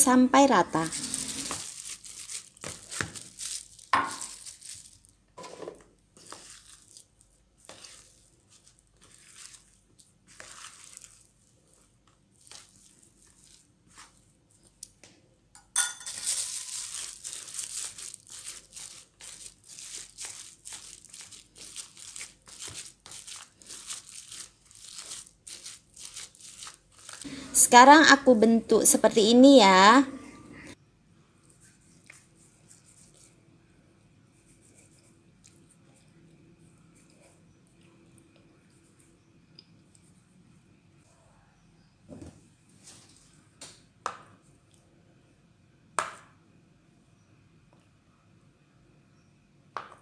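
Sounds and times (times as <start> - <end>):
spoon stirring in plastic bowl: 5.4 - 14.8.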